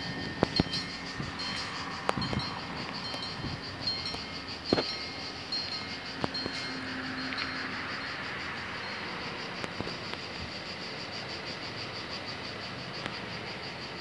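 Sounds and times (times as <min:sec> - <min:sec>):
train rail noise: 0:00.0 - 0:10.4
cicadas buzzing: 0:00.0 - 0:14.0.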